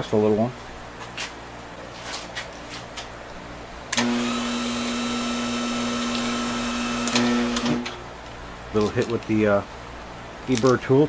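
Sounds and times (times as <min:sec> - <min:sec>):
metal lathe humming: 0:03.9 - 0:08.0.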